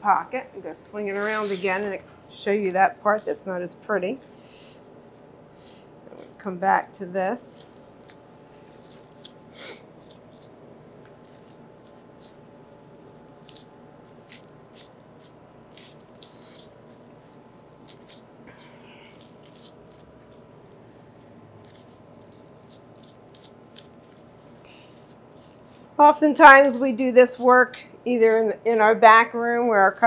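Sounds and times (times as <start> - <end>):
steady hum: 0.0 - 30.0
knife scraping meat: 7.4 - 28.9
wet squishing: 13.0 - 27.5.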